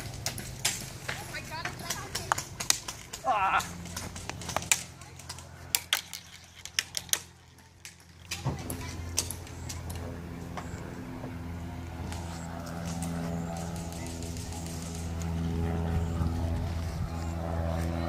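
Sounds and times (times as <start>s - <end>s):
engine-like drone: 0.0s - 18.0s
sharp irregular clicks and taps: 0.2s - 8.4s.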